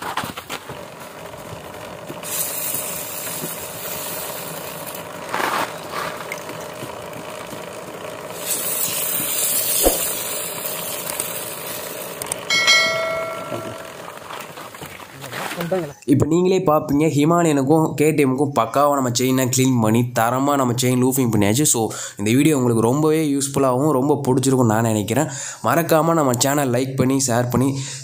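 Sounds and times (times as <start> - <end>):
aerosol spray hissing: 2.2 - 4.8, 8.3 - 11.9
short chime: 12.5 - 14.1.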